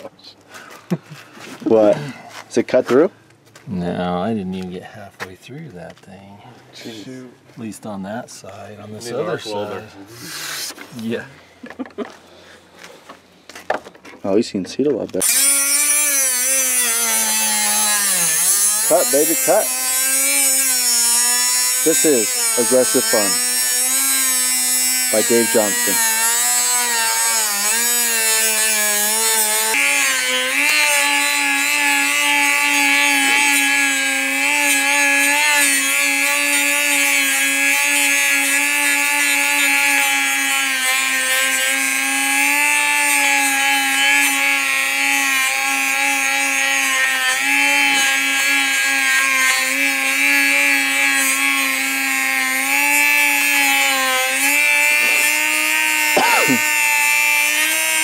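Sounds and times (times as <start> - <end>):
rotary tool grinding steel: 15.2 - 58.0.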